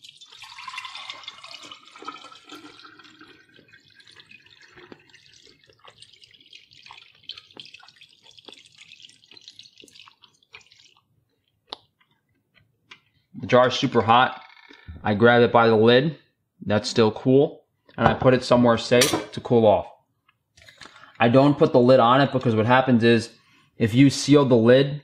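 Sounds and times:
drips: 0.0s - 12.2s
liquid fat trickling into jar: 0.0s - 12.2s.

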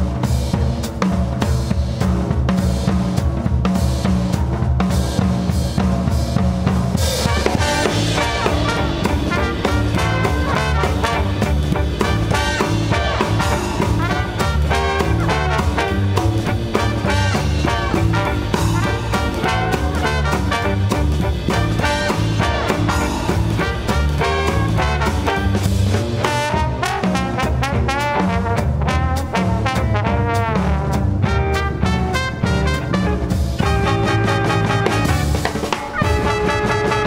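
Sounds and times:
drum kit beat: 0.0s - 37.0s
swing band music: 0.0s - 37.0s.

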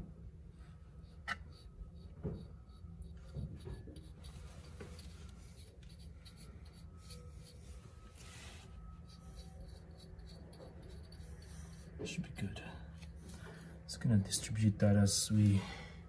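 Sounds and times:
low steady hum: 0.0s - 16.0s
light knocks and metal rubbing: 1.2s - 14.6s.

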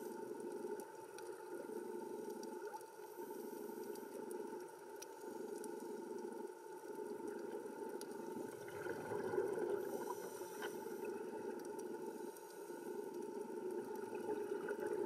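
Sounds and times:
regulator bubbles gurgling: 7.1s - 12.1s, 13.0s - 15.0s
muffled underwater hiss and hum: 9.4s - 14.0s.

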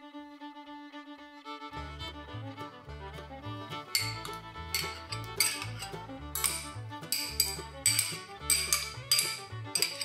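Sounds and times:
music with steady beat: 1.7s - 10.0s.

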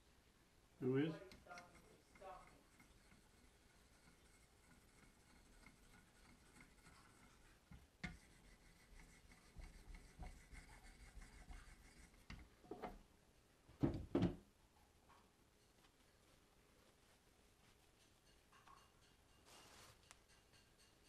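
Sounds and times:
stone rubbing on knife edge: 1.1s - 12.9s
clamp clunks and knocks: 13.8s - 14.4s.

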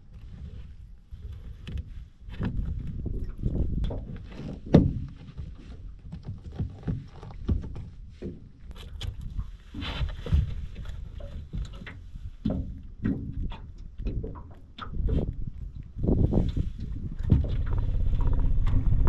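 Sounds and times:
low rumble: 15.0s - 19.0s.

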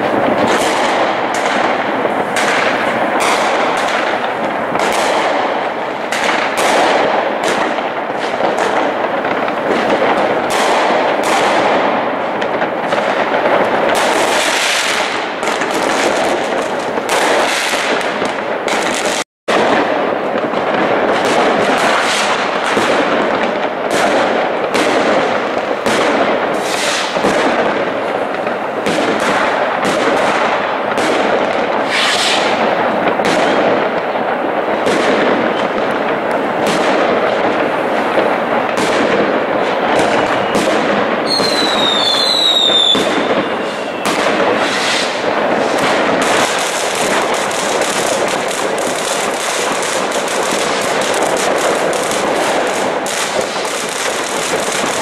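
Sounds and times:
fireworks crackling and banging: 0.0s - 55.0s
falling firework whistles: 26.5s - 27.3s, 31.8s - 32.7s, 40.0s - 55.0s.

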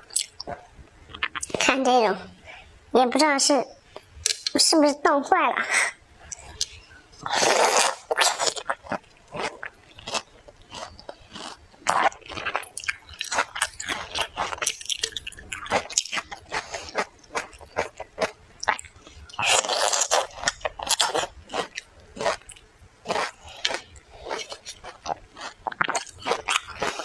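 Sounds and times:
chewing crisp frozen fruit: 6.3s - 27.0s.

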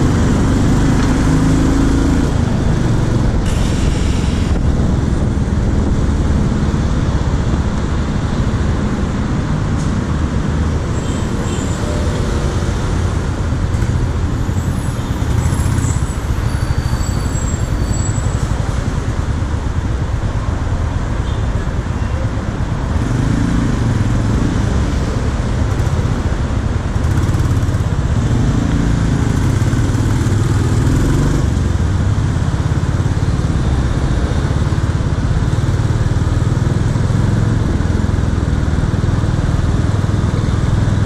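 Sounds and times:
road traffic: 0.0s - 41.0s.

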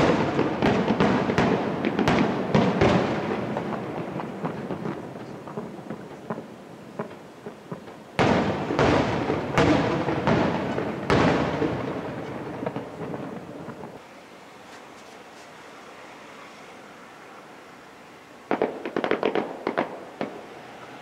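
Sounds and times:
firework booms echoing: 0.0s - 14.0s, 18.5s - 20.5s
firework crackling: 0.0s - 21.0s.

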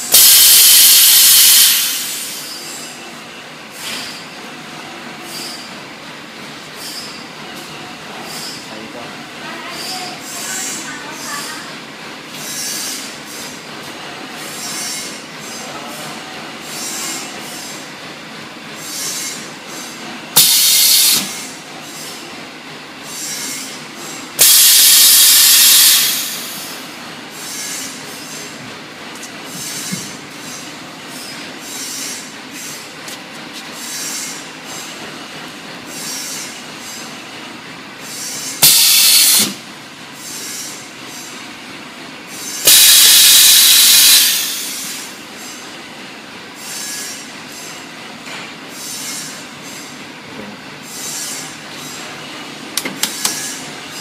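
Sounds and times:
compressed air hiss: 0.1s - 2.6s, 20.4s - 21.4s, 24.4s - 26.8s, 38.6s - 39.6s, 42.6s - 45.1s.

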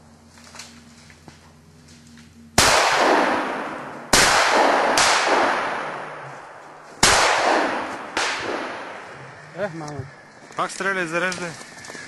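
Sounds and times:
gunshots with echo: 2.6s - 9.1s.

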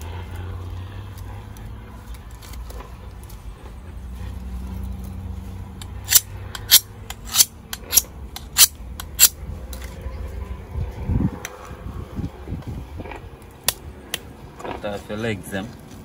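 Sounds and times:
knife blades scraping: 5.8s - 9.4s.

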